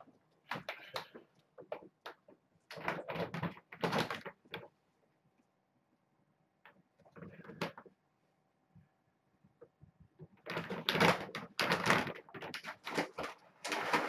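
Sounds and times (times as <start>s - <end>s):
kibble rattling into plastic container: 10.4s - 14.0s
plastic bag rustling: 10.4s - 14.0s.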